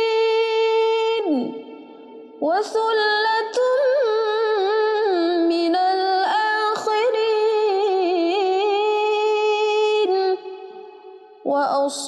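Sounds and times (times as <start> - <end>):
woman chanting melismatic recitation: 0.0 - 1.7, 2.4 - 10.5, 11.4 - 12.0.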